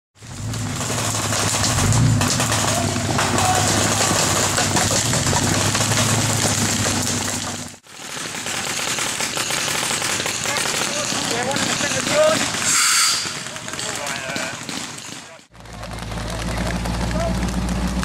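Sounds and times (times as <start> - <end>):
engine humming: 0.2 - 7.8, 15.5 - 18.0
rough outdoor noise: 0.2 - 18.0.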